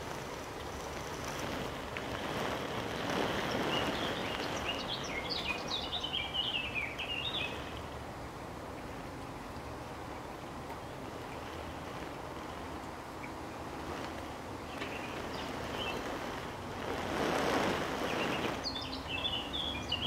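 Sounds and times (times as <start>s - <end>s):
outdoor background noise: 0.0s - 20.0s
songbird chirping: 2.3s - 8.0s, 14.6s - 16.2s, 18.0s - 20.0s.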